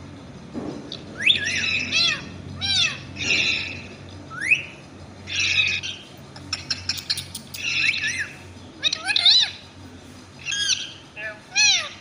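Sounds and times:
parakeet whistled chirps: 0.9 - 9.6, 10.4 - 11.9
parakeet raspy screeches: 1.3 - 6.1, 7.4 - 9.6, 10.4 - 12.0.

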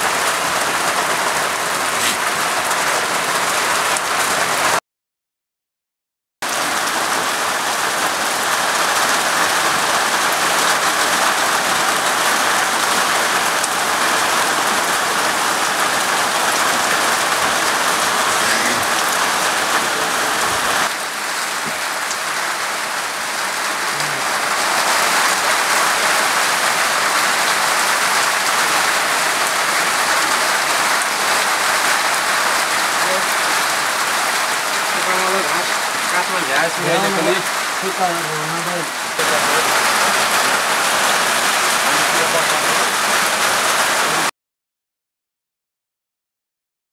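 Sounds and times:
steady rain falling: 0.0 - 4.8, 6.4 - 44.3.

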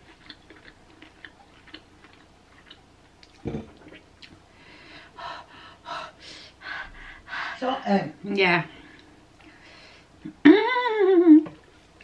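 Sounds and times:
dull thump: 3.4 - 3.7.

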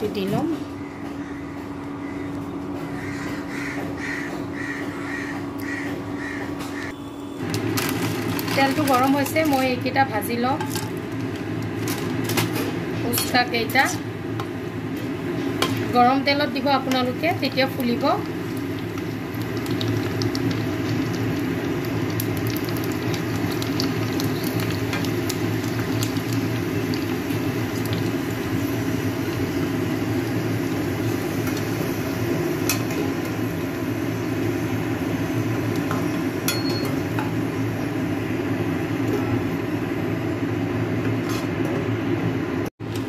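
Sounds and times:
shells sizzling in hot oil: 17.1 - 37.9
steel spoon clinking on pan: 36.5 - 37.0.

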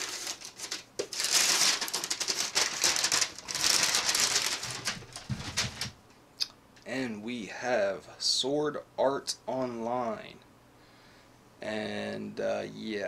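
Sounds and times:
packing paper crinkling: 0.0 - 6.0.

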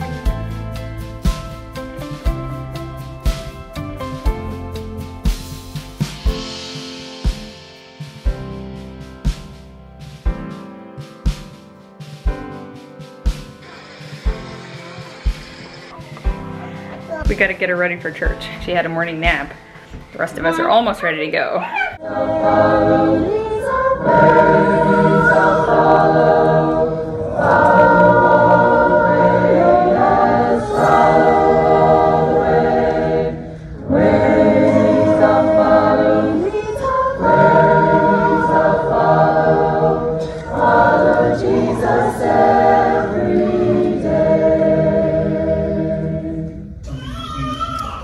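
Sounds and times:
group singing a cappella hymn: 21.9 - 46.8.

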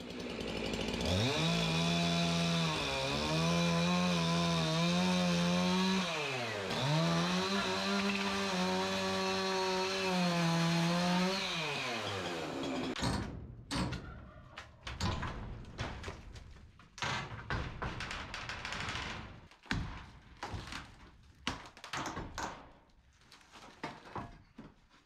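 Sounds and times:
chainsaw cutting wood: 0.0 - 13.0.

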